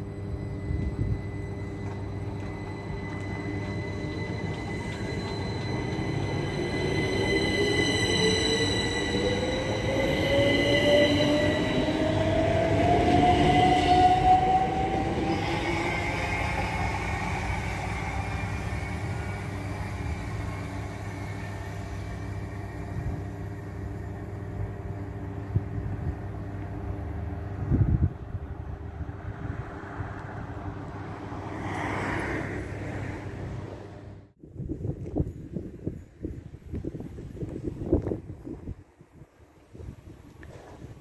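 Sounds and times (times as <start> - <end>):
electric train motor whine: 0.0 - 27.8.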